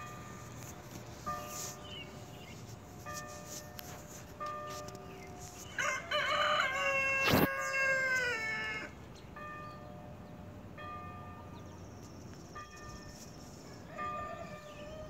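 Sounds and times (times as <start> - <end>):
church bell tolling: 0.0 - 5.3, 9.3 - 11.9, 12.6 - 15.0
rooster crowing: 5.6 - 9.0, 13.8 - 15.0.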